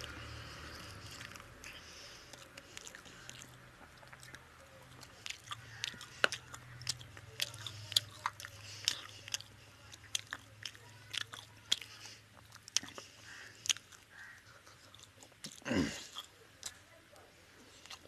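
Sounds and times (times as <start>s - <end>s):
close-up chewing: 0.0s - 18.0s
wet lip smacks and mouth clicks: 1.1s - 13.0s.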